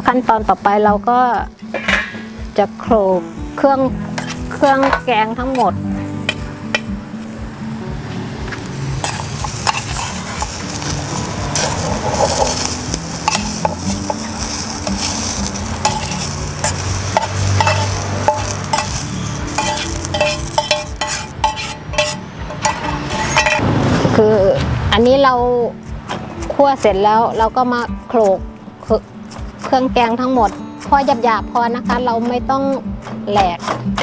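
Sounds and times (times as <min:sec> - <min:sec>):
sizzling pan: 0:00.0 - 0:23.6
metal spoon scraping a frying pan: 0:04.1 - 0:07.0, 0:09.0 - 0:23.6, 0:29.2 - 0:34.0.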